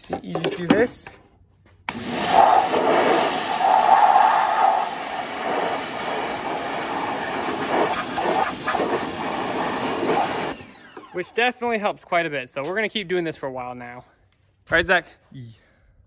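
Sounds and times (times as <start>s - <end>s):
pressure washer spraying metal: 1.9s - 10.6s.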